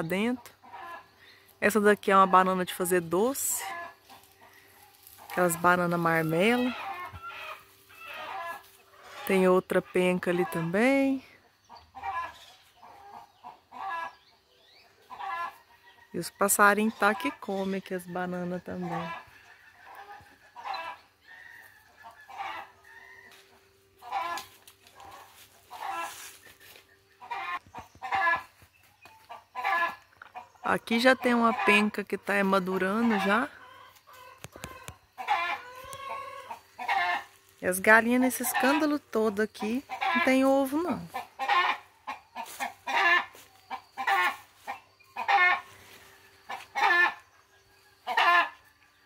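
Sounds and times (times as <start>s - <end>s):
chickens clucking: 0.0s - 49.0s
hens cackling: 0.0s - 49.0s.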